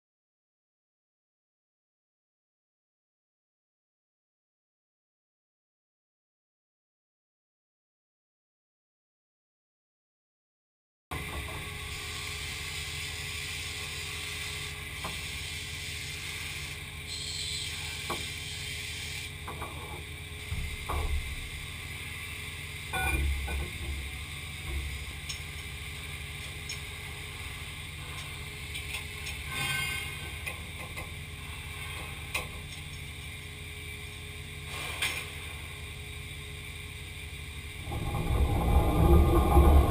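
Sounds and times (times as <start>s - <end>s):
machine hum: 11.2s - 34.7s, 35.3s - 39.9s.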